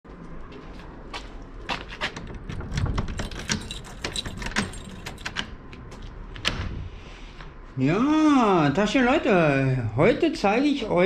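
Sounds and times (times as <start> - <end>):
keys jangling: 2.5 - 6.0
metallic clicks: 2.6 - 6.5.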